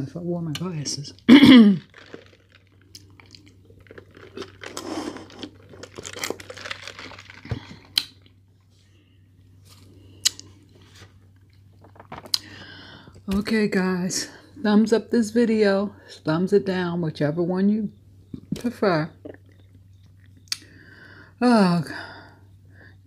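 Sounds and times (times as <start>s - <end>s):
low steady hum: 0.0s - 23.0s
person chewing food: 1.8s - 8.4s.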